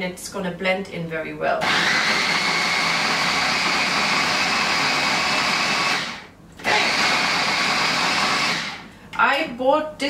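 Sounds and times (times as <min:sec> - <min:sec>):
electric food chopper motor whine: 0:01.6 - 0:08.9.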